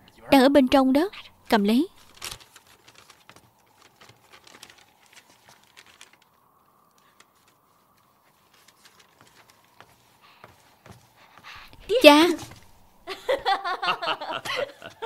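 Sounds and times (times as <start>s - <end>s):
paper sheet rustling: 1.9s - 13.0s
light footsteps: 6.9s - 13.1s.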